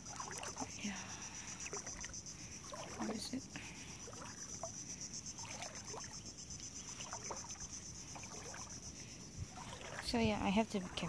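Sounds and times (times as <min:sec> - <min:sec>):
footsteps splashing in water: 0:00.0 - 0:00.7, 0:01.6 - 0:03.4, 0:04.0 - 0:04.7, 0:05.3 - 0:08.8, 0:09.5 - 0:11.0.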